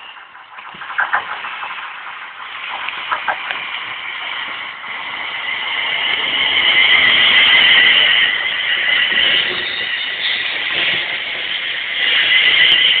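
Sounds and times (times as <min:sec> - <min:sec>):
electric train running past: 0:00.0 - 0:13.0
train high whine: 0:00.0 - 0:13.0.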